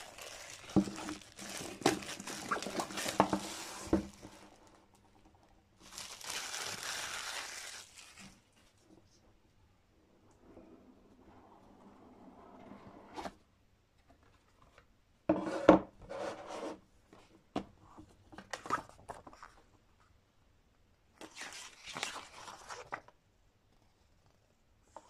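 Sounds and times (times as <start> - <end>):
cardboard and paper rustling: 0.0 - 4.6.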